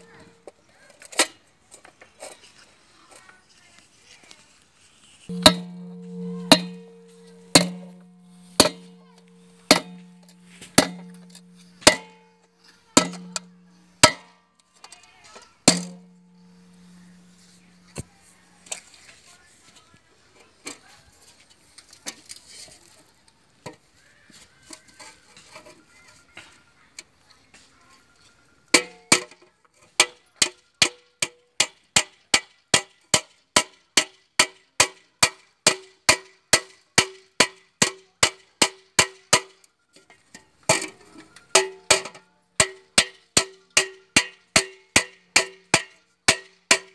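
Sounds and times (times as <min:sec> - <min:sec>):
hammer striking metal pot: 0:05.3 - 0:12.2, 0:13.0 - 0:14.4, 0:15.7 - 0:18.0, 0:41.6 - 0:46.9.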